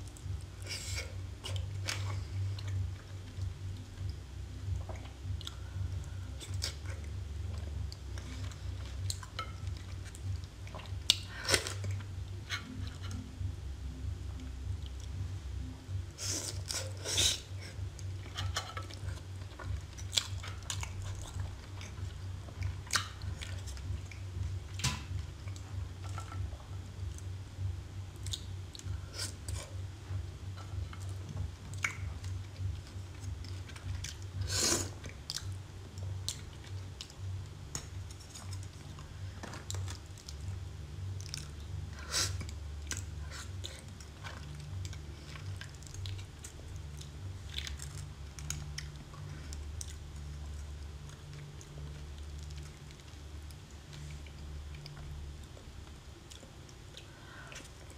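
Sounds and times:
wet chewing sounds: 0.0 - 13.4, 16.1 - 57.9
steady low hum: 0.0 - 57.9.

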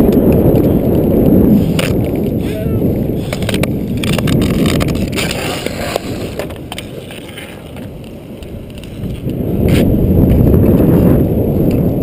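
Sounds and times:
skate wheels rolling on asphalt: 0.0 - 12.0
wind on microphone: 0.0 - 12.0
sticks clicking on pavement: 1.6 - 2.4, 3.2 - 10.9.

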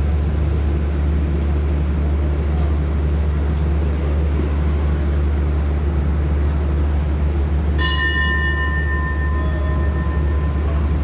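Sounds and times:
train humming: 0.0 - 11.0
metal bell ringing: 7.8 - 11.0.

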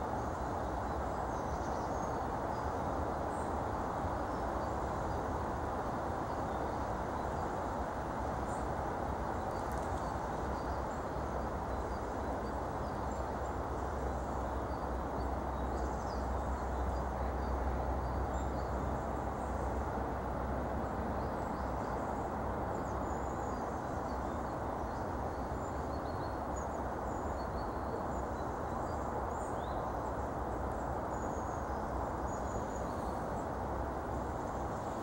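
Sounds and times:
small birds chirping: 9.3 - 19.7.

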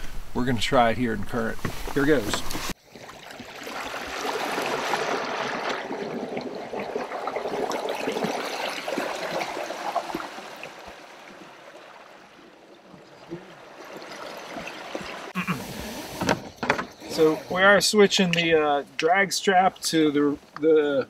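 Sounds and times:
wake splashing off hull: 2.2 - 16.5
propeller churning water: 2.8 - 17.4.

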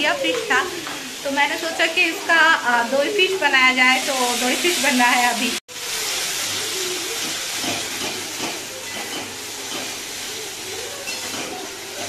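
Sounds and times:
paste sizzling in oil: 0.1 - 12.0.

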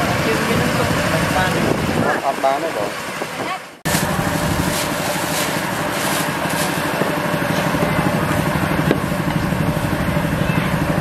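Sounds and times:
small engine idling: 3.9 - 11.0.

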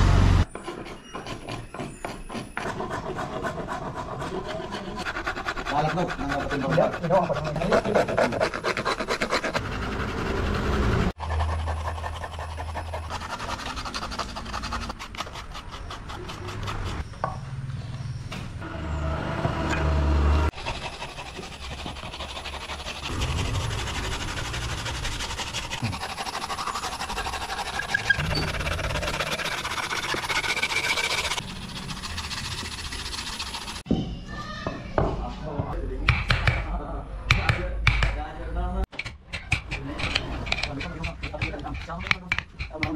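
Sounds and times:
rasp scraping wood: 0.4 - 17.0, 20.5 - 33.9, 39.5 - 42.9
low rumble: 23.0 - 25.8.

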